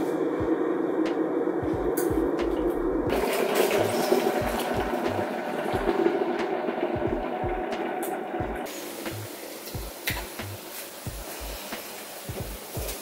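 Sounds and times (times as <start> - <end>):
electric kettle rumbling: 0.0 - 13.0
hot water pouring into mug: 3.1 - 13.0.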